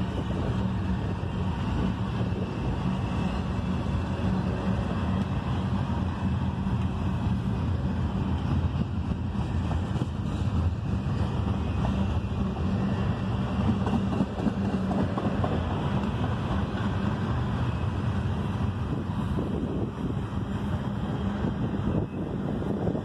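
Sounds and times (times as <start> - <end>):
steel wheels rumbling on rails: 0.0 - 23.0.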